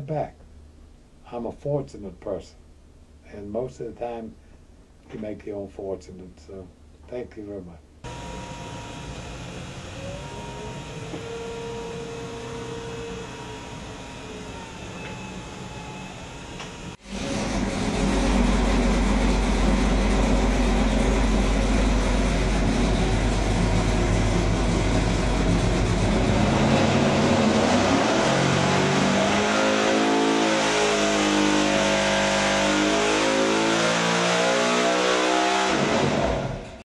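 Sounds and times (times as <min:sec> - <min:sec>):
racing engine revving: 0:17.0 - 0:36.8.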